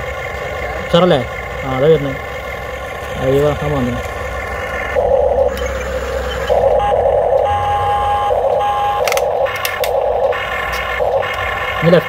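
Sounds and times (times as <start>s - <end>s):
held beep-like tone: 5.0s - 12.0s
sharp clicks: 8.5s - 11.5s.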